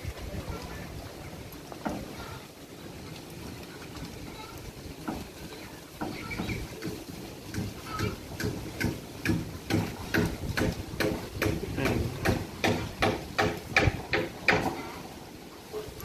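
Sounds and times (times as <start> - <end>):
goats chewing leaves: 0.0 - 12.7.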